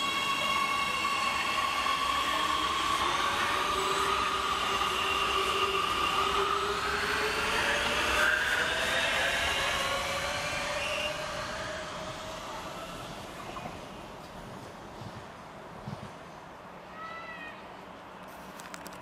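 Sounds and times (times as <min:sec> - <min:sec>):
electric train motors whining: 0:00.0 - 0:14.2
train wheels rolling on rails: 0:00.0 - 0:16.7.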